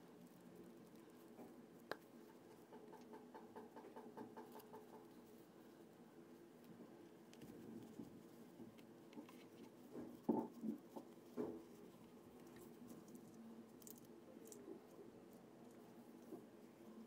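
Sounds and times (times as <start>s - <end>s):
soft taps and rustles: 6.6s - 14.6s.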